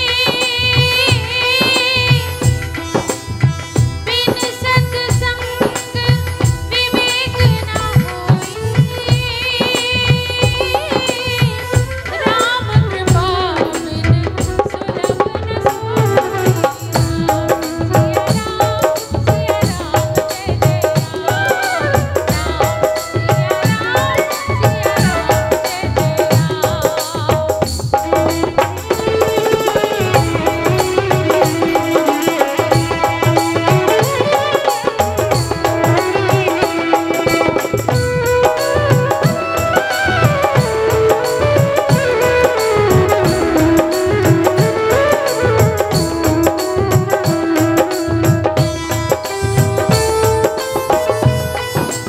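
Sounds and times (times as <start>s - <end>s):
steady drum beat: 0.0s - 52.0s
woman singing into microphone: 0.0s - 52.0s
keyboard melody: 28.0s - 52.0s.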